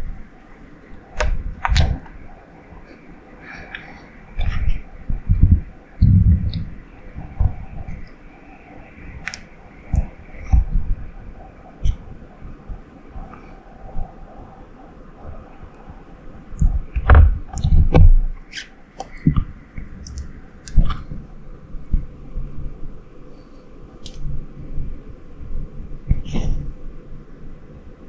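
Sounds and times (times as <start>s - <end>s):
low rumbling handling noise: 0.0s - 8.2s, 15.3s - 26.9s.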